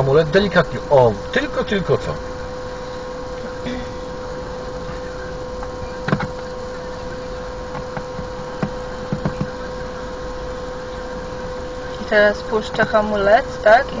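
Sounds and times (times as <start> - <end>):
car engine hum with whine: 0.0 - 14.0
light knocks and clicks: 7.7 - 9.6.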